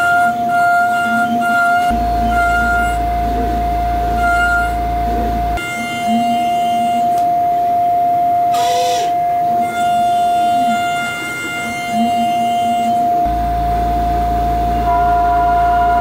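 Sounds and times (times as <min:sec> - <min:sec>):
high-pitched spindle whine: 0:00.0 - 0:16.0
sliding motor sounds: 0:08.5 - 0:15.1.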